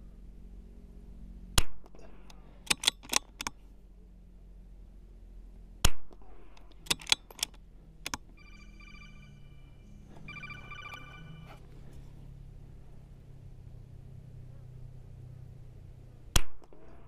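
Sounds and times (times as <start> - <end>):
rifle bolt clicking: 2.2 - 3.6, 6.6 - 8.2.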